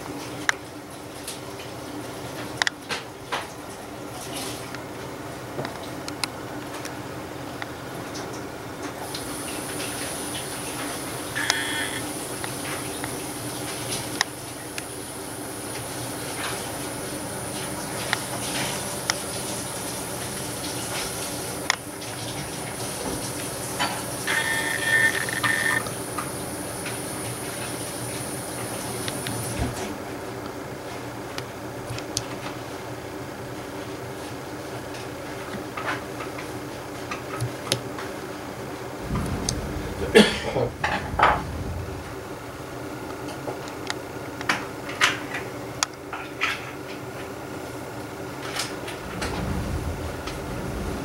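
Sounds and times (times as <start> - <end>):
room background hiss: 3.9 - 46.5
steady low hum: 9.0 - 30.3, 38.8 - 44.0, 48.0 - 51.0
faint high whine: 9.2 - 13.4, 23.8 - 29.4.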